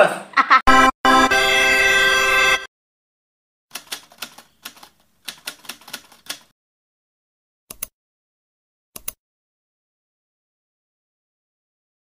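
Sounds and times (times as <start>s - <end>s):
typewriter keys clacking: 3.7s - 6.5s.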